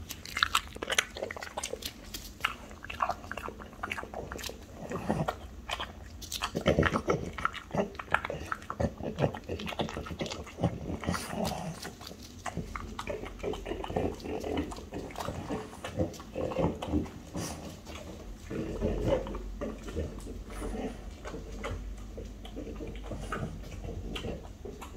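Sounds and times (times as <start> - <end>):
dog chewing and licking: 0.0 - 24.9
dog snuffling: 8.2 - 24.9
dog sniffing carpet: 17.2 - 19.0.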